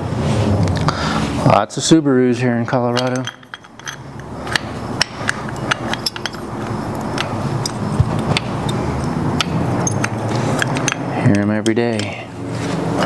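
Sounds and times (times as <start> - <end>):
metallic tool clinks: 2.9 - 4.2, 5.2 - 7.9
car engine running: 4.1 - 10.9.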